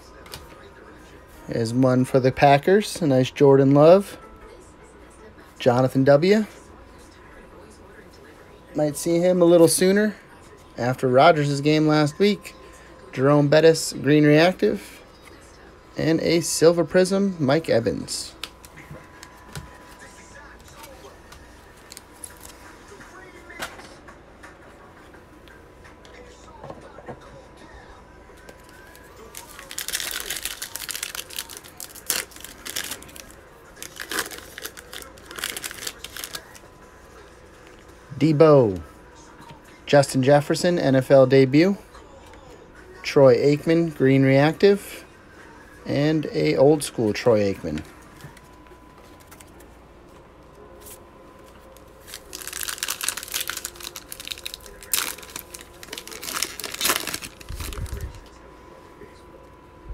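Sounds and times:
foil wrapper crinkling and tearing: 28.5 - 36.7, 51.7 - 58.3.

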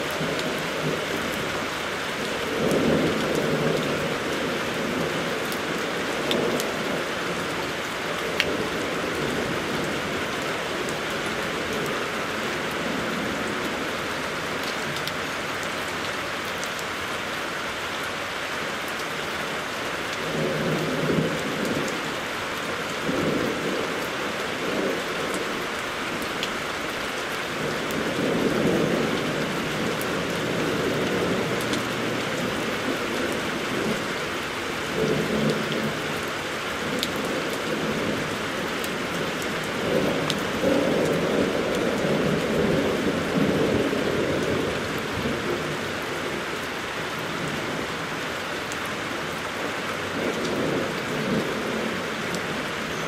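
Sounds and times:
heavy rain falling: 0.0 - 53.0
thunder rumbling: 27.6 - 34.1, 34.8 - 46.5.

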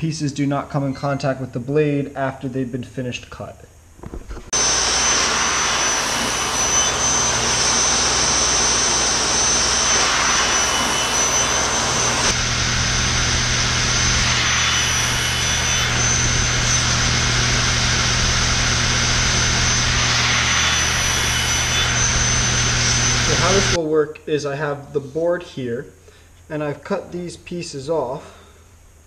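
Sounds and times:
board being cut: 4.5 - 23.8
table saw whining: 4.5 - 23.8
air hose blowing: 4.6 - 23.8.

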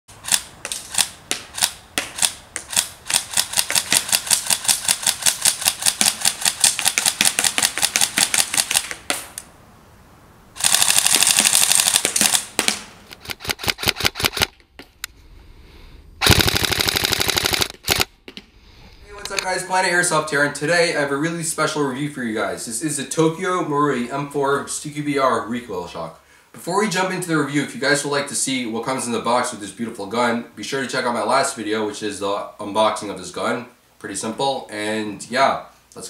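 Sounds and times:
airsoft rifle full-auto burst: 0.2 - 9.4, 10.6 - 14.6, 16.2 - 18.1.

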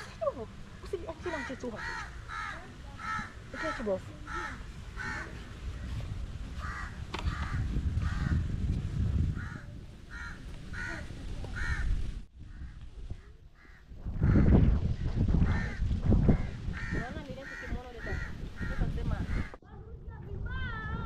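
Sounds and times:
crow cawing: 1.1 - 5.4, 6.6 - 8.4, 9.4 - 12.8, 13.6 - 14.6, 15.4 - 19.6.

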